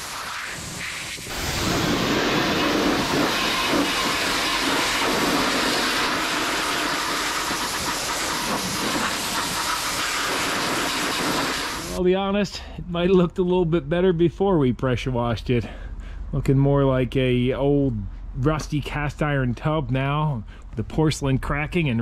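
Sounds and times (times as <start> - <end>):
pressure washer spraying: 0.0 - 12.0.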